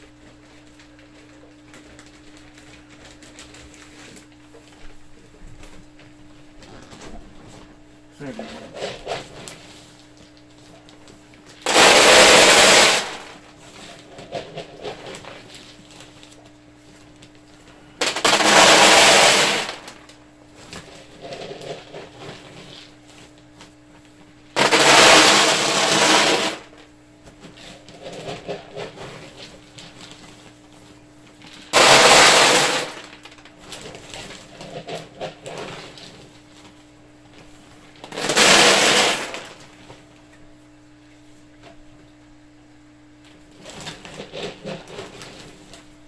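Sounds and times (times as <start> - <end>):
pellets rattling on plastic: 11.5 - 16.4, 18.0 - 20.1, 24.5 - 26.8, 31.4 - 36.2, 38.0 - 39.8.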